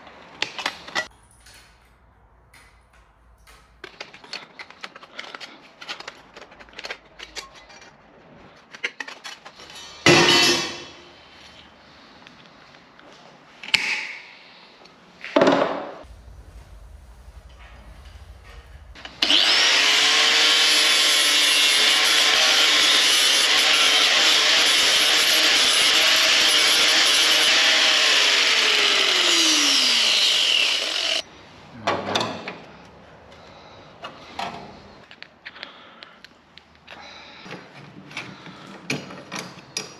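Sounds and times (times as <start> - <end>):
power tool cutting sheet metal: 19.0 - 31.2.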